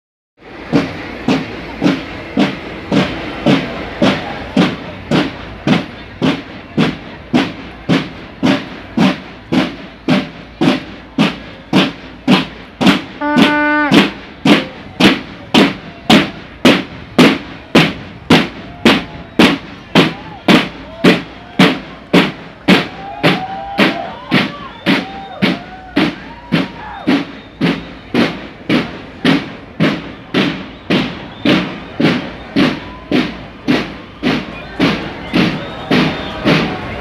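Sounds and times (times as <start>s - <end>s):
marching band drums: 0.4s - 37.0s
held horn-like tone: 13.2s - 14.1s.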